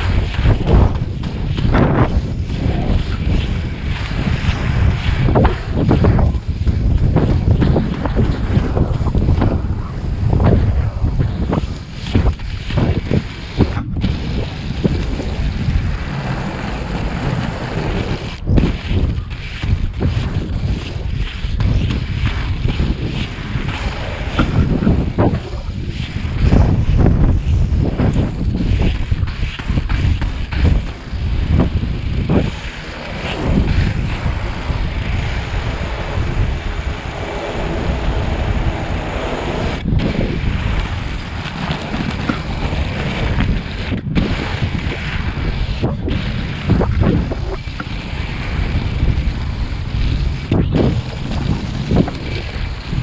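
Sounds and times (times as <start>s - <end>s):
skate wheels rolling on asphalt: 0.0s - 53.0s
wind buffeting microphone: 0.0s - 53.0s.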